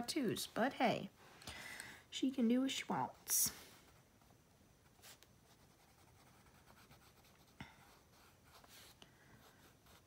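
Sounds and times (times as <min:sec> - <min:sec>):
pencil scratching on paper: 0:04.9 - 0:10.0.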